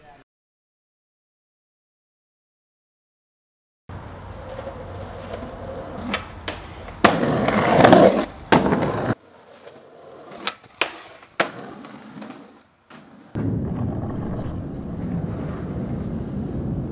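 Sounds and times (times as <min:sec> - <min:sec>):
skateboard wheels rolling on concrete: 0:03.9 - 0:16.9
skateboard clacks: 0:04.3 - 0:13.4.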